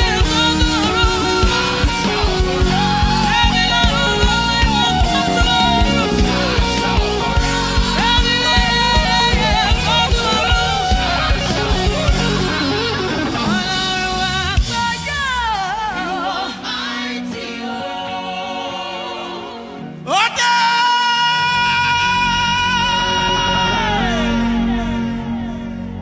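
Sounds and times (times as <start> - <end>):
steady drum beat: 0.0 - 14.9
person singing gospel: 0.0 - 26.0
sustained chords: 22.0 - 26.0.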